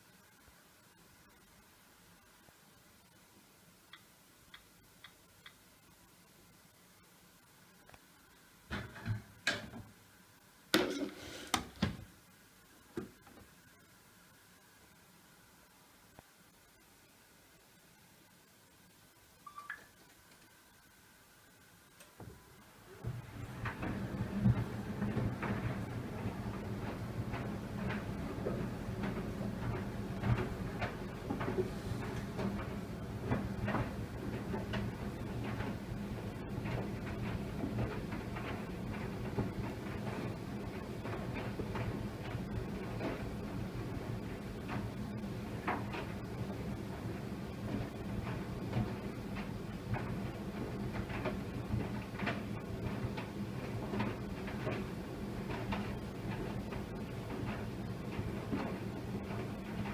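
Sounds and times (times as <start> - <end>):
soft knocks of tumbling load: 23.0 - 59.9
tumble dryer motor hum: 23.0 - 59.9.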